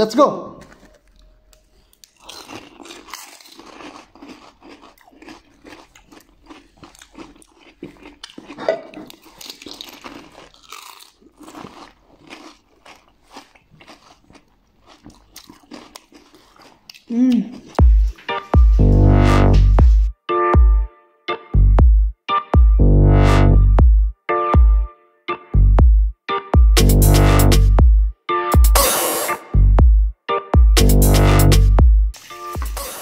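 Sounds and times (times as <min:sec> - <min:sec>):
crunchy chewing: 0:00.6 - 0:18.2.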